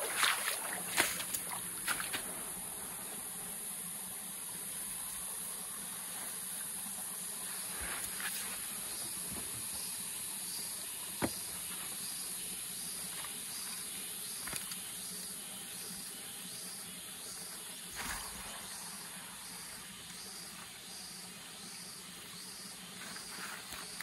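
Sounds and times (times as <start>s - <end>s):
high-pitched insect chorus: 0.0s - 24.0s.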